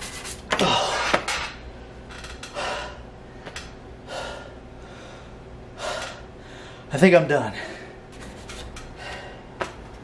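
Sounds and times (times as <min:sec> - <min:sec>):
tools clattering onto workbench: 0:01.0 - 0:01.6.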